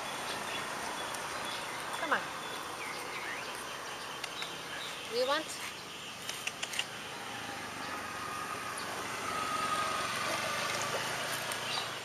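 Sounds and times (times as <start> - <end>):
vehicle engine passing: 6.7 - 12.0.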